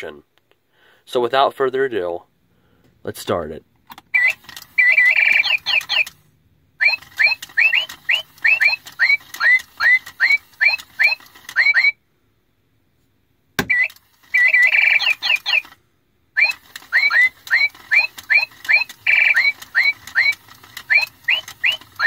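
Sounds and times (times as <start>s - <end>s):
toy click: 3.9s - 6.2s, 6.8s - 11.9s, 13.6s - 15.8s, 16.4s - 22.0s
toy bird chirping: 4.1s - 6.2s, 6.8s - 12.0s, 13.6s - 15.8s, 16.4s - 22.0s.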